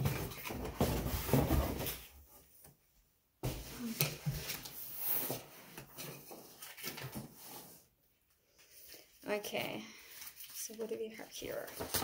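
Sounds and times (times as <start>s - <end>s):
paper rustling: 3.8s - 7.8s, 10.0s - 12.0s.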